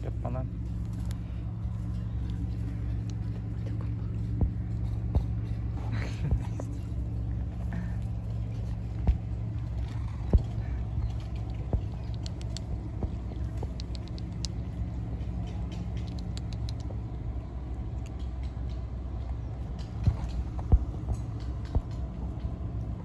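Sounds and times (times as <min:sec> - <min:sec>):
steady low rumble: 0:00.0 - 0:23.0
kittens crunching dry kibble: 0:00.5 - 0:17.1.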